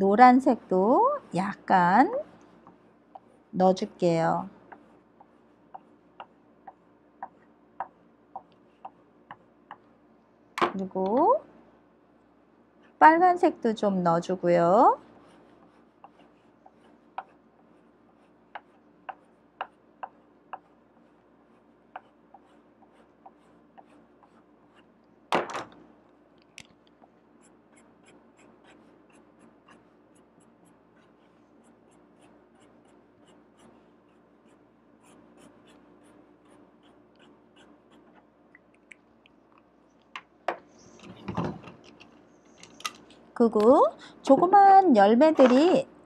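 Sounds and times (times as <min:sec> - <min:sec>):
marker strokes on paper: 0:04.7 - 0:09.5, 0:14.6 - 0:24.9, 0:27.4 - 0:38.3
pencil scratching on paper: 0:04.7 - 0:09.8, 0:14.9 - 0:24.9, 0:27.3 - 0:38.3.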